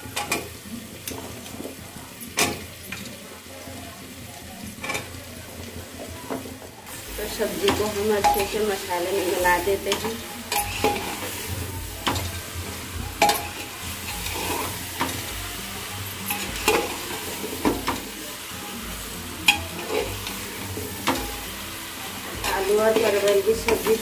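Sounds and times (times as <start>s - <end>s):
vegetables sizzling in oil: 0.0s - 24.0s
metal spatula scraping a pot: 7.3s - 15.3s, 16.1s - 18.1s, 19.4s - 21.5s.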